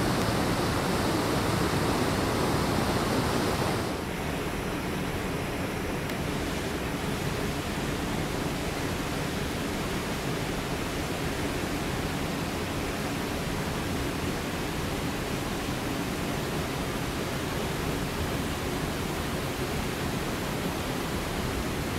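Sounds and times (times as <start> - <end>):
creek water rushing: 0.0 - 4.0.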